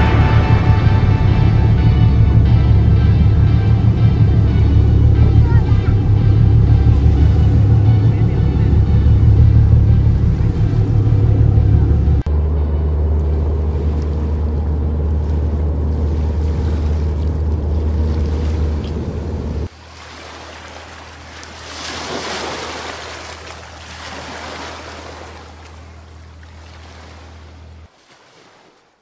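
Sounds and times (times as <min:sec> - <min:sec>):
car cabin rumble: 0:00.0 - 0:19.7
low hum with hiss: 0:00.0 - 0:20.0.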